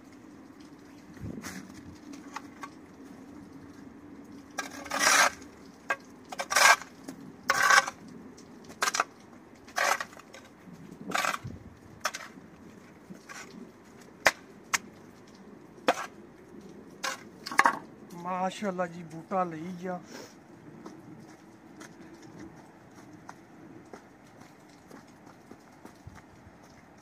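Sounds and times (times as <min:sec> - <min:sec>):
spade scraping concrete: 0:04.6 - 0:08.0, 0:08.7 - 0:12.4, 0:13.1 - 0:14.8, 0:15.8 - 0:16.2, 0:17.0 - 0:17.8.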